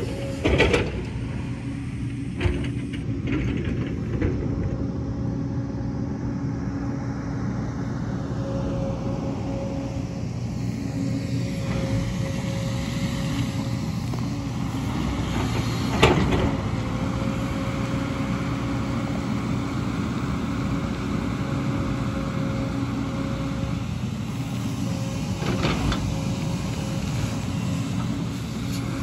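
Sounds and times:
excavator diesel engine running: 0.0s - 29.0s.

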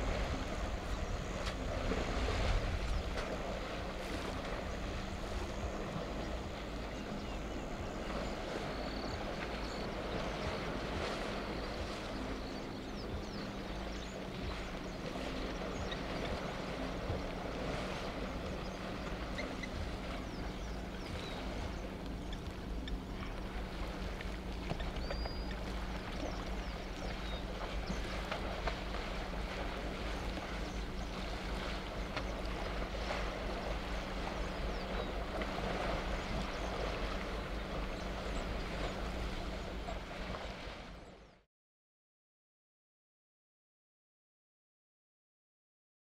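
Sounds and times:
elephants splashing in water: 0.0s - 6.3s, 25.1s - 39.2s
wind rumbling on microphone: 0.0s - 41.4s.

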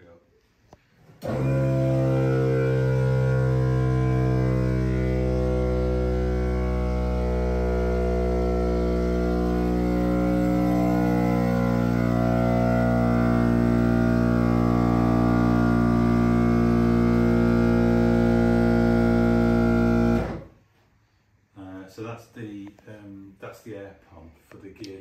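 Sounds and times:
droning chord music: 1.2s - 20.4s.

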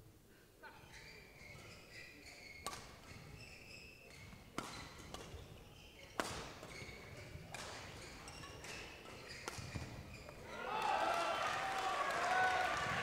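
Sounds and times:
shoes squeaking on court: 0.8s - 10.4s
rackets striking shuttlecock: 2.6s - 3.4s, 4.1s - 10.4s.

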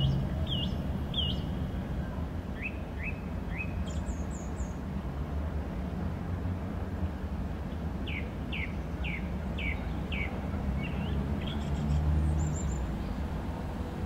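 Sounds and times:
songbird chirping: 0.0s - 4.6s
low rumble of town ambience: 0.0s - 14.0s.

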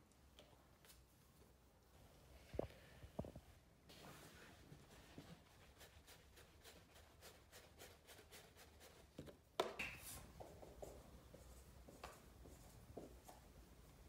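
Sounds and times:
cloth wiping whiteboard: 3.9s - 9.2s.

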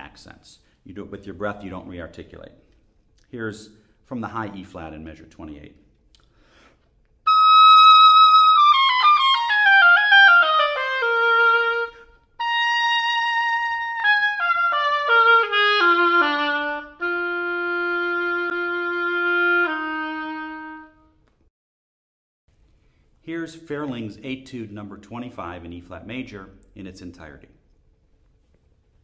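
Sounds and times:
solo oboe playing: 7.3s - 21.2s.

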